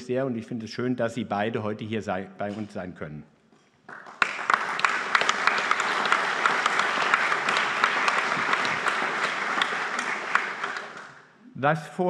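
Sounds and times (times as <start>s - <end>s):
audience applauding: 3.9s - 11.4s.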